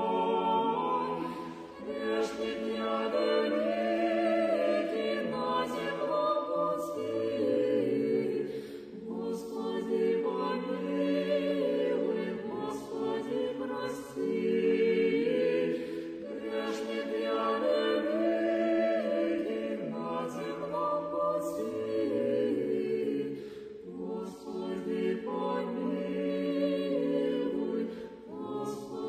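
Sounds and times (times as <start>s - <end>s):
choir singing a cappella chant: 0.0s - 29.0s.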